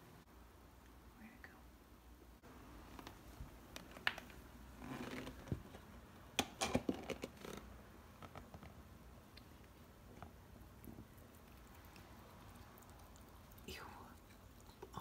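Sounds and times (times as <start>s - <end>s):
soft rustle: 2.6s - 6.1s.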